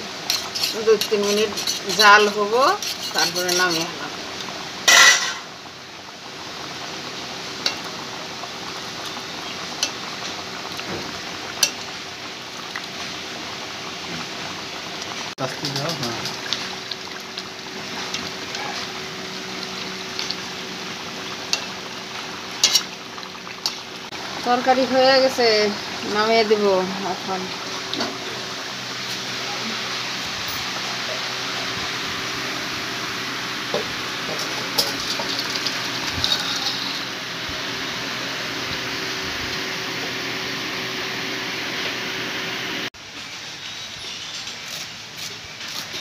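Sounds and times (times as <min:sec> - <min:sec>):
curry bubbling in a wok: 0:00.0 - 0:42.8
ladle scraping a pan: 0:00.2 - 0:04.0, 0:04.9 - 0:05.5, 0:15.4 - 0:16.8, 0:22.6 - 0:23.0, 0:33.8 - 0:37.2.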